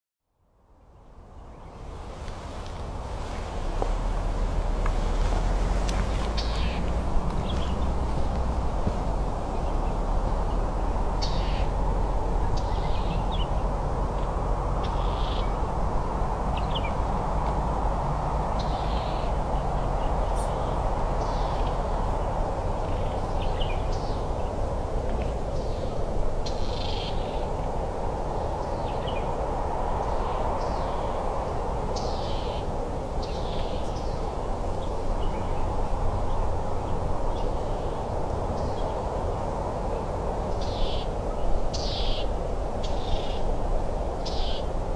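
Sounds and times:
birds chirping: 0:03.3 - 0:11.8, 0:16.5 - 0:17.1, 0:18.5 - 0:24.6.

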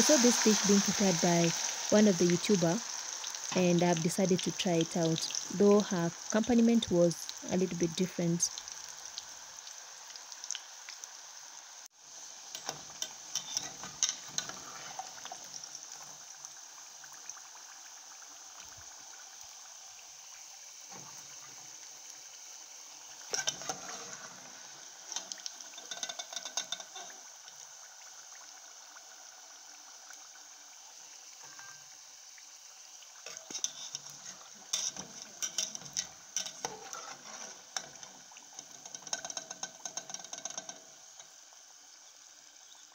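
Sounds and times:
oil sizzling and crackling: 0:00.0 - 0:42.9
metal spatula stirring in pot: 0:12.5 - 0:16.2, 0:23.2 - 0:27.2, 0:33.2 - 0:41.2.

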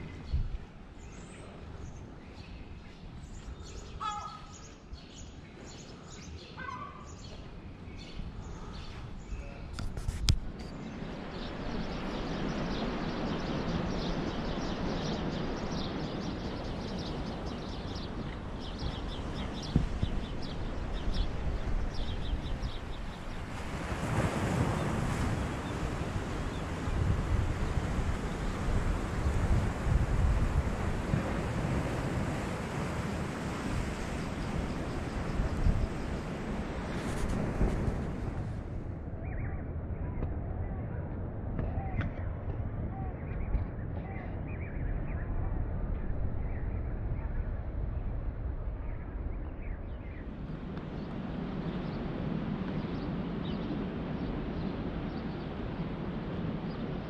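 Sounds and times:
small birds chirping: 0:00.0 - 0:23.4
wind rushing: 0:09.8 - 0:39.2.

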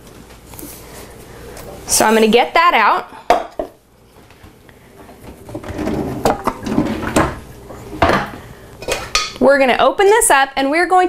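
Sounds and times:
items clattering in cupboard: 0:05.0 - 0:09.4.

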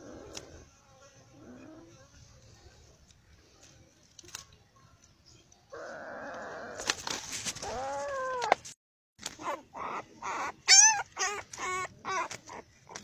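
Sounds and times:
puppy yelping and whining: 0:07.6 - 0:08.6, 0:09.4 - 0:13.0.

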